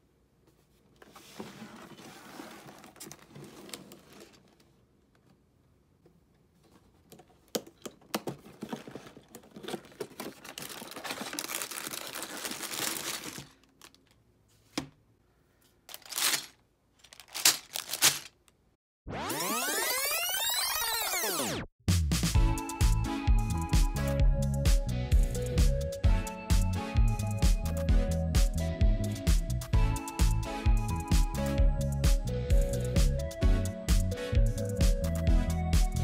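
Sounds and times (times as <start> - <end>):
cardboard box rustling and scraping: 1.0 - 4.5
plastic bags crinkling: 8.5 - 14.2, 15.9 - 18.4.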